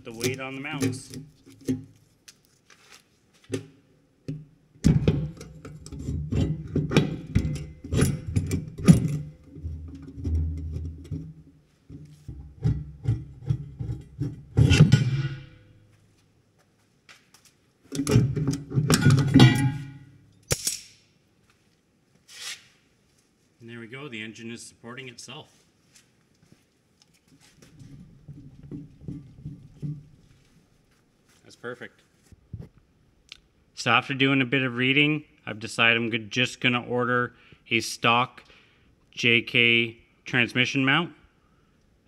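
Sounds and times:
sharp clicks and knocks: 3.5s - 15.5s, 17.9s - 20.9s.

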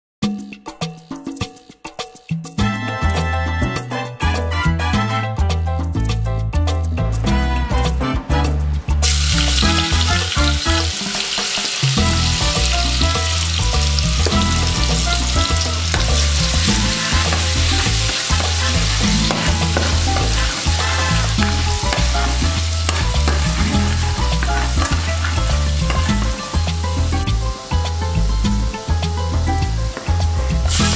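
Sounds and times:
garlic sizzling in hot oil: 9.0s - 30.9s
metal ladle stirring in pot: 14.6s - 26.5s.

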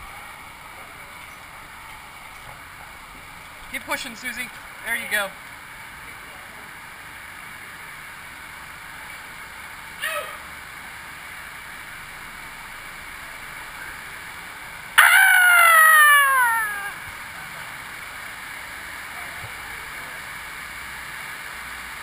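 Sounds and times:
person whooping: 15.0s - 17.1s.

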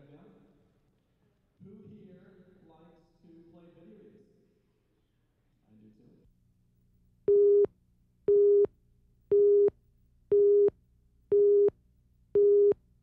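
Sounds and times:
short countdown beeps: 10.3s - 10.7s, 11.3s - 11.7s.

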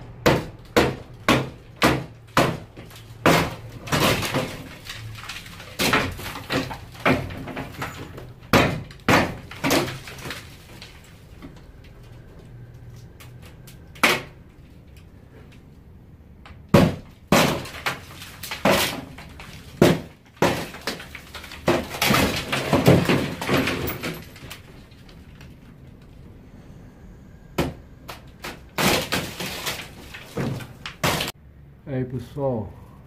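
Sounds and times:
wood cracking and knocking: 0.2s - 15.8s, 16.4s - 26.3s, 27.6s - 31.4s
falling debris clattering: 0.8s - 15.6s, 16.7s - 26.3s, 27.6s - 31.4s.

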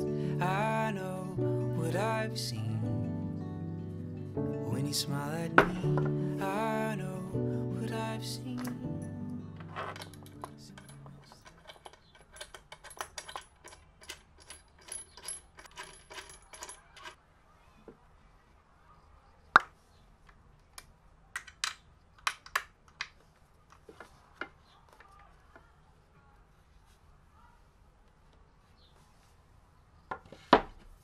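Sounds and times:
hex key clicking on metal bracket: 8.6s - 17.2s.

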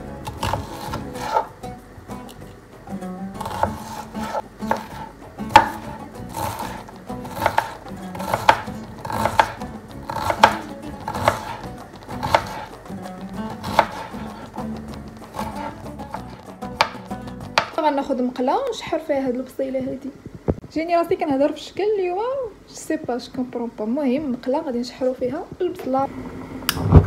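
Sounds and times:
knife knocking cutting board: 16.8s - 17.8s.

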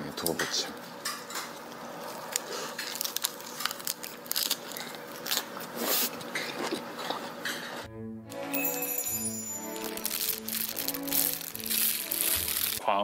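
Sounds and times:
person chewing crisp leaves: 1.5s - 7.4s, 9.6s - 12.8s.

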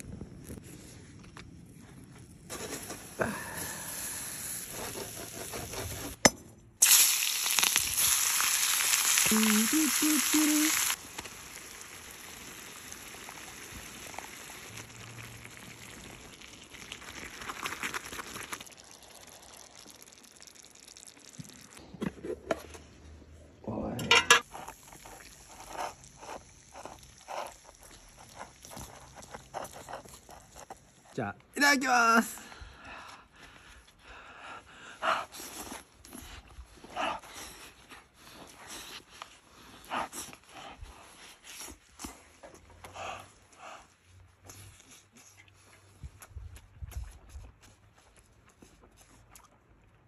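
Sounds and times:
food sizzling in hot oil: 6.8s - 21.8s.

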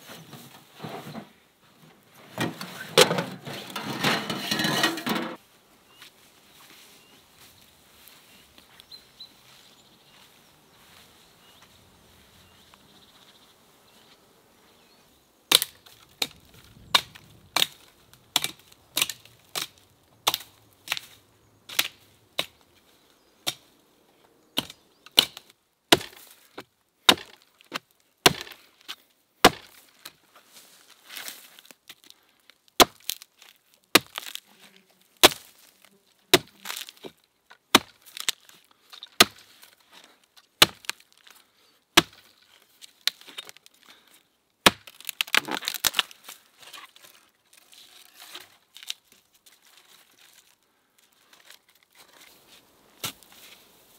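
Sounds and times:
faint outdoor background: 0.0s - 53.9s
axe chopping wood: 15.5s - 21.0s, 24.6s - 26.2s, 27.1s - 28.6s, 29.4s - 29.8s, 32.8s - 33.2s, 33.9s - 34.4s, 35.2s - 35.5s, 36.3s - 38.4s, 39.2s - 39.4s, 40.6s - 41.0s, 42.0s - 42.3s, 44.6s - 46.0s.

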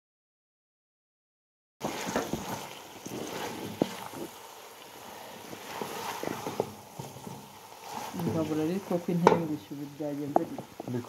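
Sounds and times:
frying hiss: 1.8s - 11.0s
wooden spoon scraping a pot: 1.8s - 11.0s
spoon knocking against pot: 9.2s - 9.6s.

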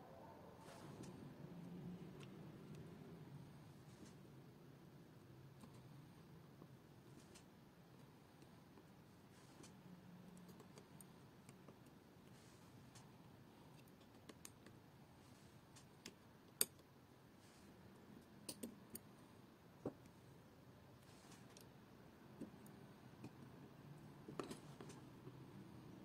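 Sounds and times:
metal tweezers clicking: 18.5s - 19.0s.

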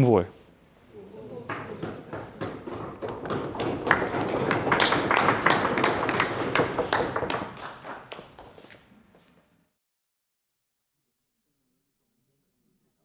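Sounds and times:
audience applauding: 1.4s - 8.9s.

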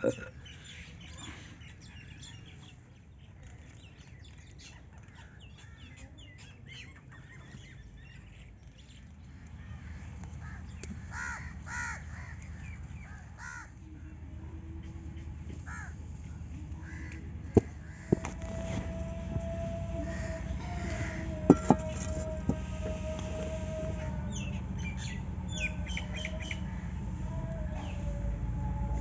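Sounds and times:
low steady rumble: 6.9s - 29.0s
crows cawing: 9.8s - 13.7s, 15.7s - 15.9s, 16.8s - 18.2s.

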